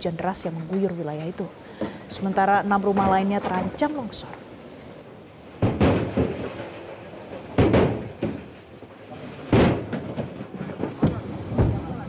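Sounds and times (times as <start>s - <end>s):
heavy thumps: 5.6s - 6.7s, 7.4s - 8.6s, 9.5s - 11.9s.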